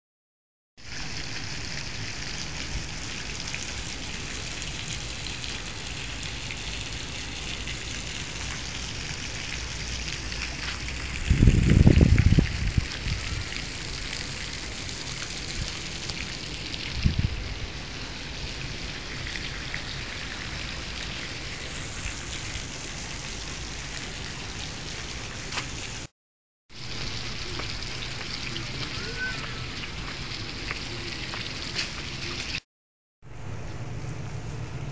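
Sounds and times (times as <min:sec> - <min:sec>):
wind hiss on microphone: 0:10.6 - 0:13.7, 0:15.2 - 0:16.1, 0:16.7 - 0:17.7
wind gust buffeting microphone: 0:11.2 - 0:13.6, 0:16.9 - 0:17.5.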